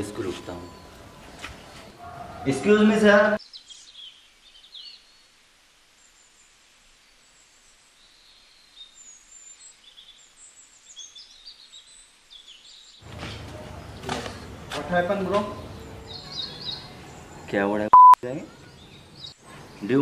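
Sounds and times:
background hiss: 2.7 - 13.7
small birds chirping: 3.3 - 20.0.

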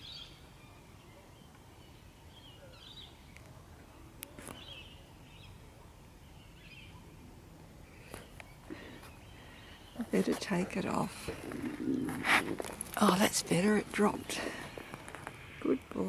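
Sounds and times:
distant bird chirps: 4.5 - 16.0.

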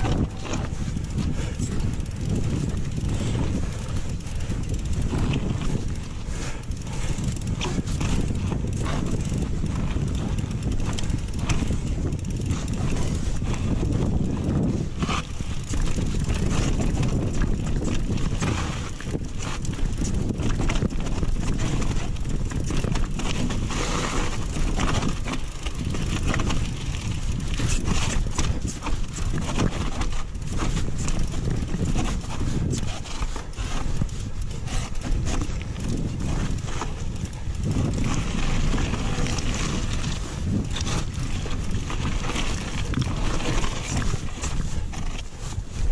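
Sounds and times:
mountain bike rattling on rocks: 0.0 - 45.9.

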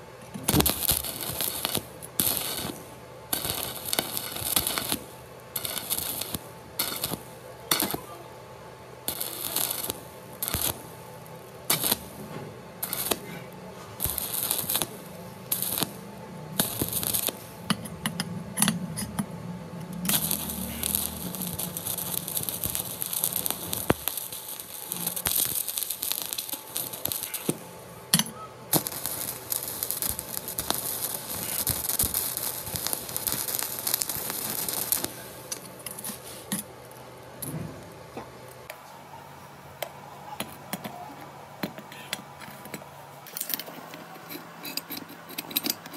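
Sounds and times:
welding arc crackling: 0.0 - 8.4, 9.0 - 37.1.

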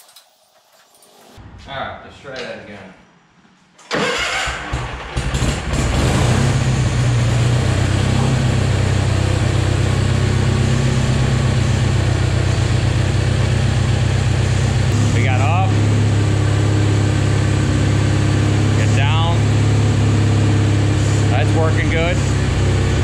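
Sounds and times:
tractor engine cranking and running: 3.8 - 8.4.

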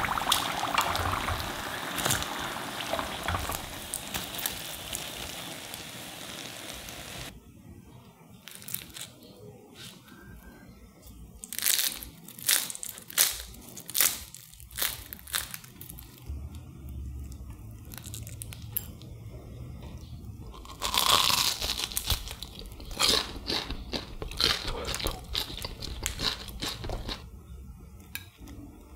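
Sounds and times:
spring roll crunching: 0.0 - 7.3.

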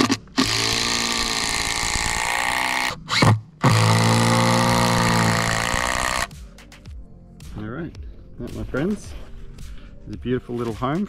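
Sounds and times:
cordless drill running: 0.0 - 6.3.

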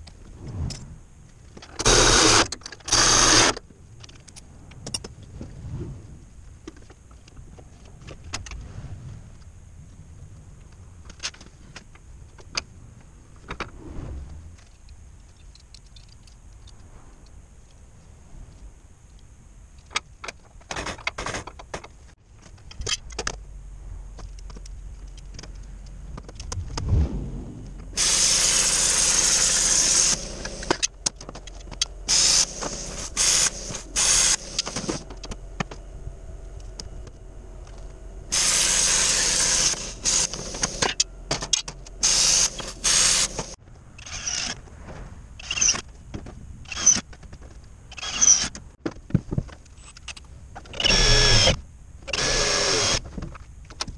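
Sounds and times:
power tool cutting sheet metal: 1.8 - 3.6, 28.0 - 30.8, 32.1 - 35.0, 38.3 - 41.0, 42.0 - 43.6.

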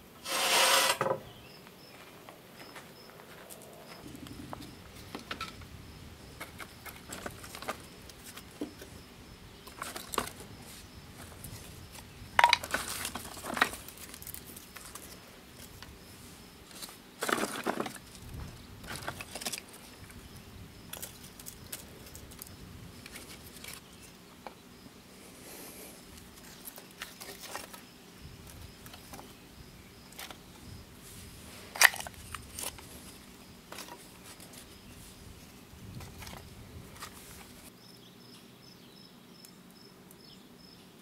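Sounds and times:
wood sticks clattering: 12.4 - 15.2, 16.7 - 18.0.

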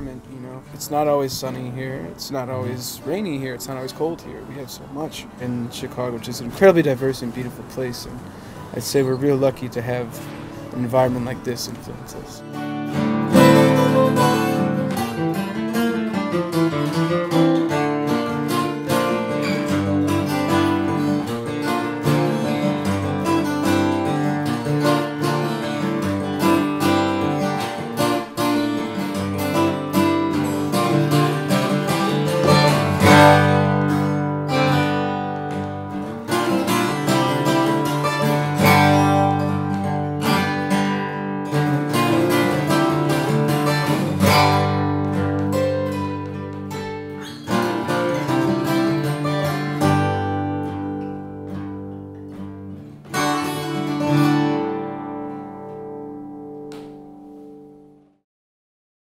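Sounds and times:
acoustic guitars playing: 0.0 - 58.2.

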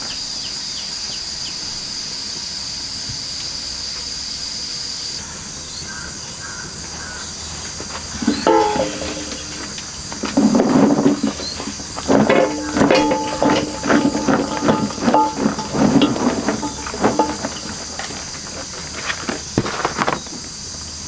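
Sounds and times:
high-pitched insect drone: 0.0 - 10.4.

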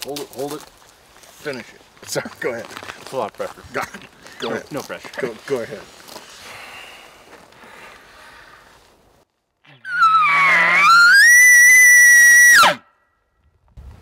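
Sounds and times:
elk bugle call imitation: 9.8 - 12.9.

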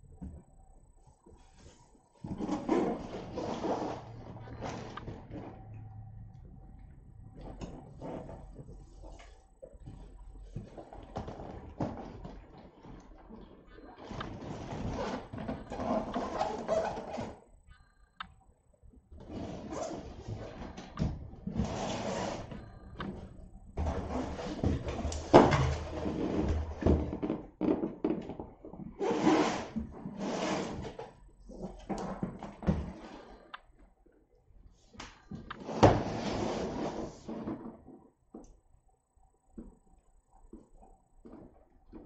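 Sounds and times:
cardboard box scraping on floor: 2.2 - 5.5, 21.5 - 22.6, 23.8 - 27.2, 29.0 - 31.6, 35.6 - 37.8.

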